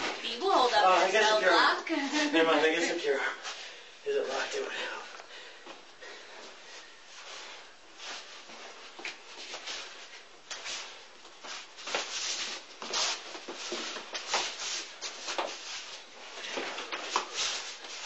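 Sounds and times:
feet shuffling: 0.0s - 3.8s, 5.6s - 18.0s.

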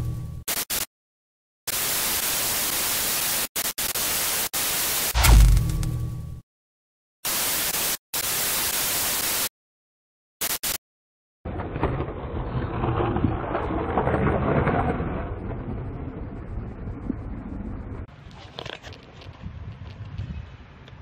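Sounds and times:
static hiss bursts: 0.5s - 0.9s, 1.7s - 5.4s, 7.2s - 9.5s, 10.4s - 10.8s.

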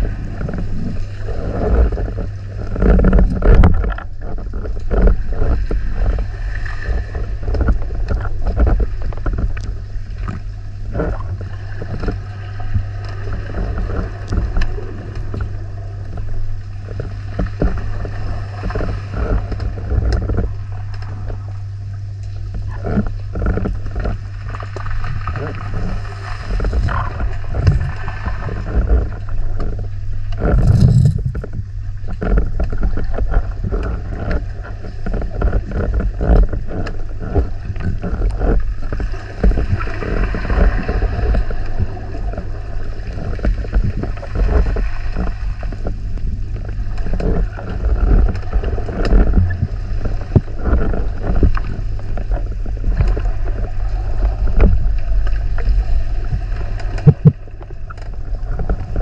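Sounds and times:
underwater crackling and clicking: 0.0s - 59.0s
underwater low drone: 0.0s - 59.0s
whooshing water rush: 24.8s - 32.7s.

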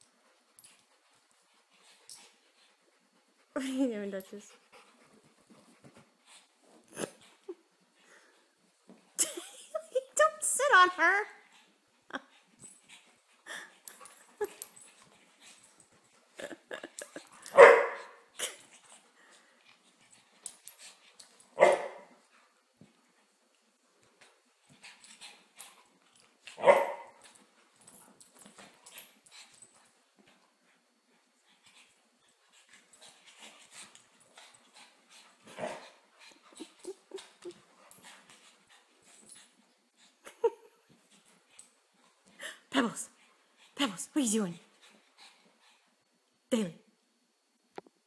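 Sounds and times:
dog barking: 17.6s - 18.2s, 21.6s - 22.0s, 26.6s - 27.1s.

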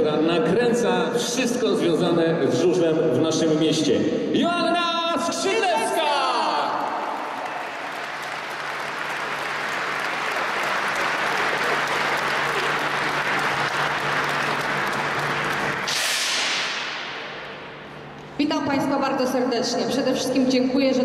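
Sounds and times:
audience applauding: 6.6s - 17.1s
hiss-like burst: 15.9s - 17.0s.

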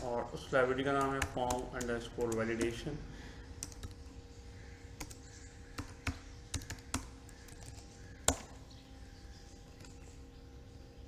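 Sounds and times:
computer keyboard typing: 0.7s - 2.8s, 3.6s - 4.0s, 5.0s - 8.4s.

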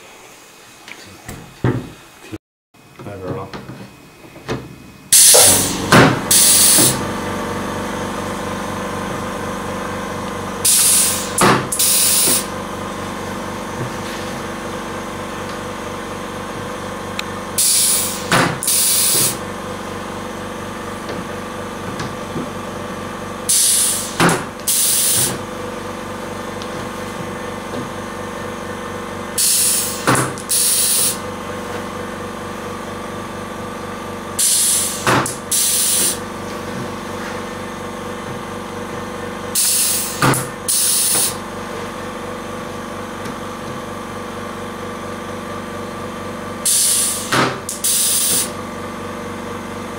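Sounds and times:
steady hum: 0.0s - 44.0s
compressed air hiss: 5.2s - 7.0s, 10.6s - 12.5s, 17.6s - 19.4s, 23.5s - 25.3s, 29.4s - 31.2s, 34.4s - 36.2s, 39.6s - 41.4s, 46.7s - 48.5s.

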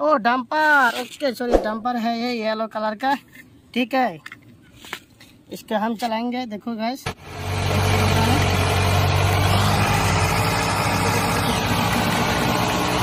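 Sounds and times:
truck engine idling: 7.2s - 13.0s.

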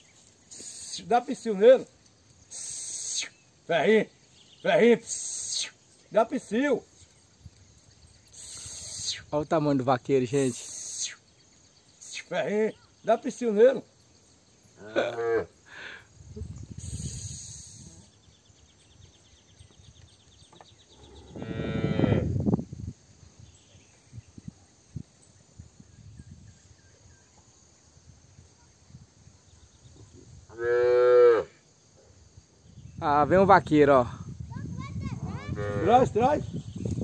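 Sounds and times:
faint insect trill: 0.0s - 37.0s
cattle mooing: 21.3s - 22.3s.

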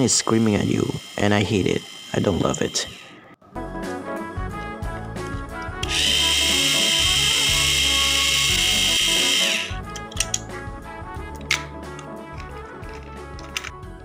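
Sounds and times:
toy train motor whining: 0.0s - 3.3s, 5.8s - 9.8s.

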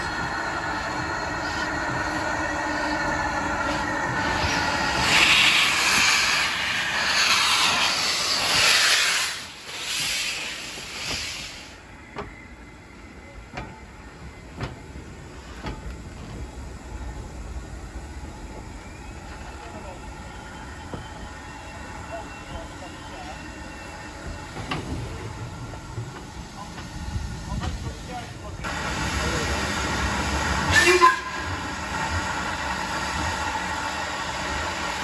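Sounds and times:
steam locomotive passing: 0.0s - 35.0s
train wheels clicking over rail joints: 0.1s - 12.6s, 13.3s - 16.6s, 24.2s - 28.4s
loud steam hiss bursts: 1.3s - 11.9s, 27.1s - 35.0s.

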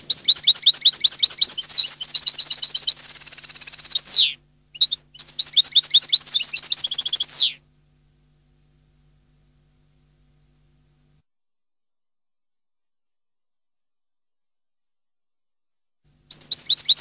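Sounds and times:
goldfinch twittering song: 0.0s - 7.5s, 16.3s - 17.0s.

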